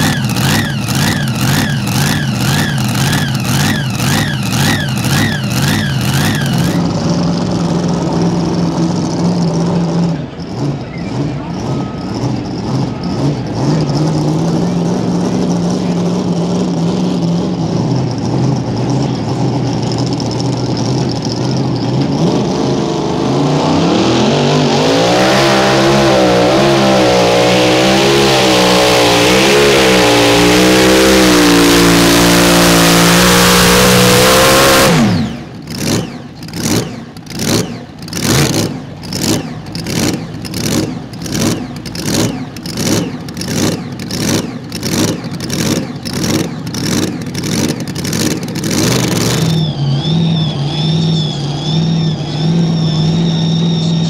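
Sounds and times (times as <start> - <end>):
tractor engine running under load: 0.0 - 22.2, 30.3 - 54.0
pulsing engine sound: 0.0 - 54.0
high wavering whine: 48.9 - 54.0.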